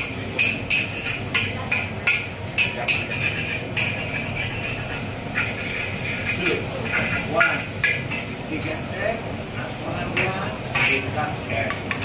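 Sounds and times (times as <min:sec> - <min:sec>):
metal spatula clanking on wok: 0:00.0 - 0:08.3.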